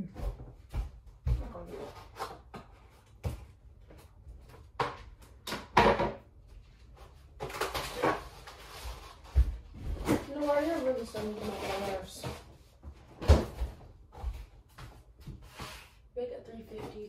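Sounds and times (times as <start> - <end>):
kitchen knocks and clatters: 0.1 - 6.3, 9.3 - 15.5.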